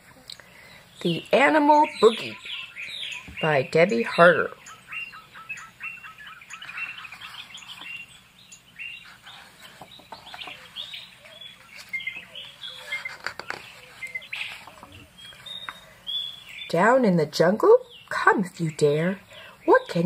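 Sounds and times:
birds chirping and calling: 0:00.1 - 0:20.0
book pages turning: 0:09.0 - 0:15.8.

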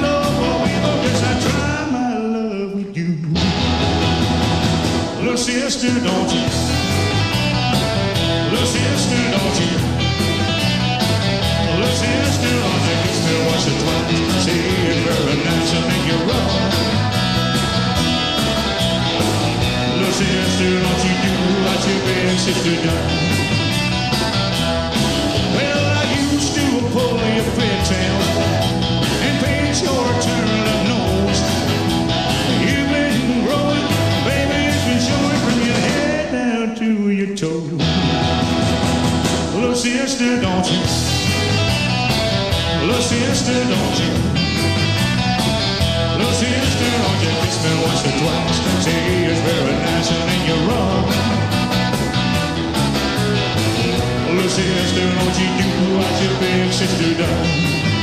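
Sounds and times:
rock and roll band playing: 0:00.0 - 0:58.0.

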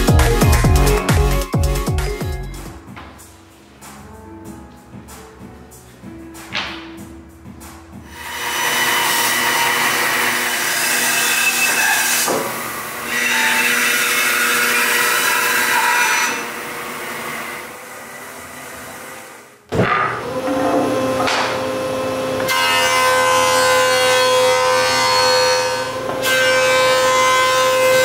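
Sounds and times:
bandsaw cutting wood: 0:08.1 - 0:19.3, 0:20.1 - 0:28.0.

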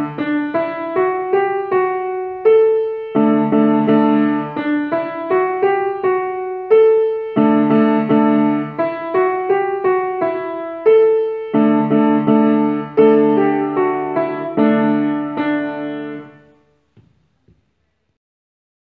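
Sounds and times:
grand piano playing: 0:00.0 - 0:16.8
faint knocks: 0:16.9 - 0:17.8.

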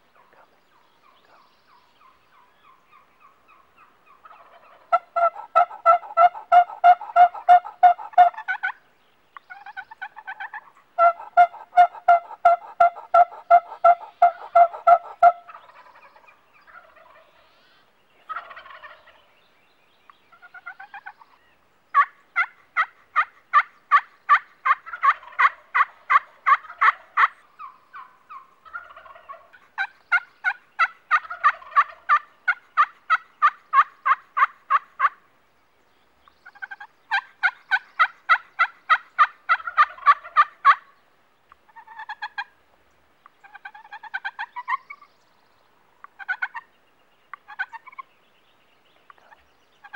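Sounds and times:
soft turkey calls: 0:00.0 - 0:08.8, 0:09.4 - 0:19.4, 0:20.1 - 0:35.3, 0:36.2 - 0:49.9
turkey yelping: 0:02.0 - 0:08.8, 0:09.5 - 0:17.5, 0:18.3 - 0:19.2, 0:22.0 - 0:35.2, 0:36.5 - 0:40.9, 0:41.7 - 0:42.5, 0:43.4 - 0:45.0, 0:46.1 - 0:46.7, 0:47.4 - 0:48.0.

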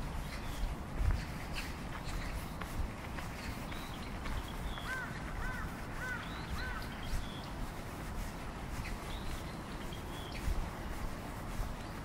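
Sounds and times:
crow cawing: 0:04.8 - 0:07.0.

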